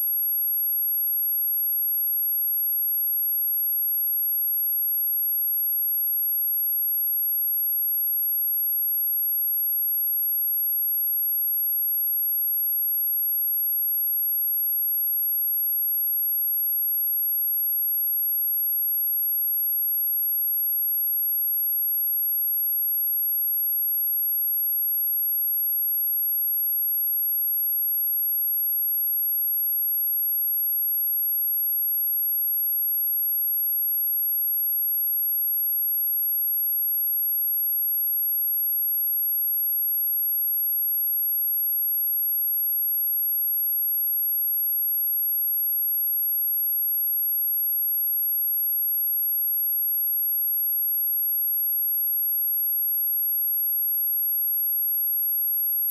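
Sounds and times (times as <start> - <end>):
high-pitched sine test tone: 27.5 - 55.9.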